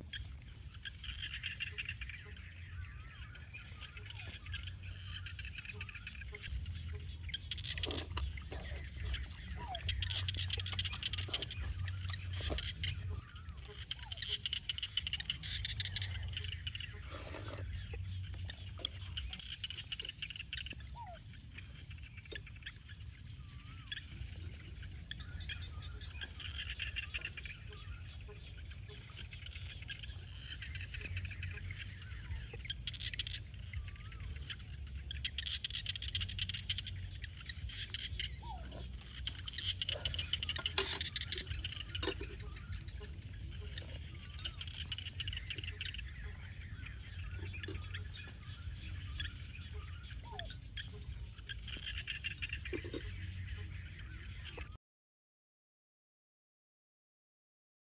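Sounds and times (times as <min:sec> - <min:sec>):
insects and frogs chorus: 0:00.0 - 0:54.8
slurping: 0:16.9 - 0:17.9.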